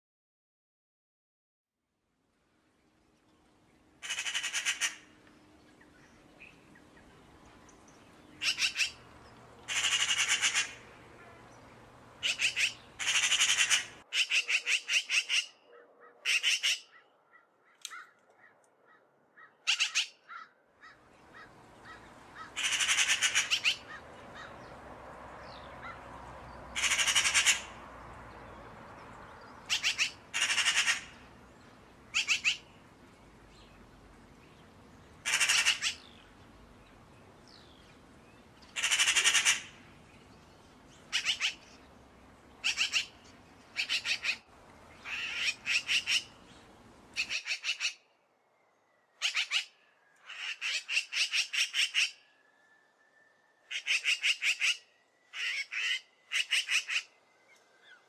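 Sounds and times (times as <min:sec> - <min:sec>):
magpies chattering: 0:08.4 - 0:09.0, 0:09.7 - 0:10.8, 0:12.2 - 0:15.6, 0:20.8 - 0:24.5, 0:26.8 - 0:27.7, 0:29.7 - 0:31.1, 0:38.8 - 0:39.7, 0:42.6 - 0:43.2, 0:45.0 - 0:46.3
steady background noise: 0:20.8 - 0:49.8.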